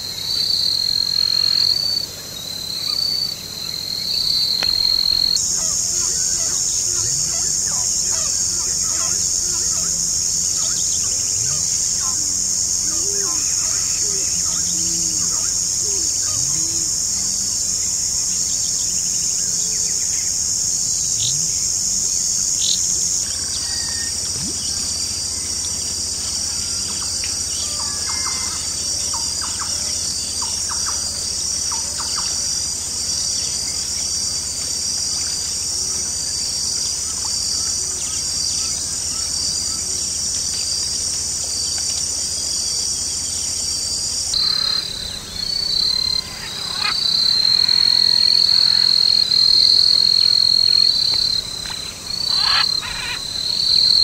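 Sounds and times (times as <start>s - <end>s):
insects chorus: 0.0s - 54.0s
short bird calls: 51.8s - 53.3s.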